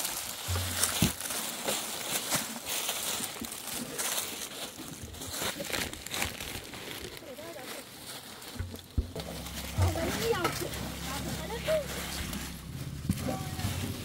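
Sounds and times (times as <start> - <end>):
footsteps on stony ground: 0.0 - 14.0
plastic sacks crinkling: 0.0 - 14.0
low handling bumps: 0.3 - 1.6, 8.5 - 14.0.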